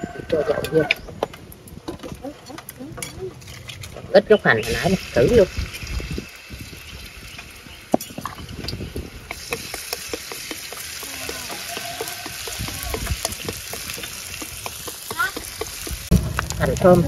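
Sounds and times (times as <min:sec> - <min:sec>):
scallions sizzling in hot oil: 0:04.2 - 0:17.0
utensil clicking against pan: 0:09.3 - 0:16.6.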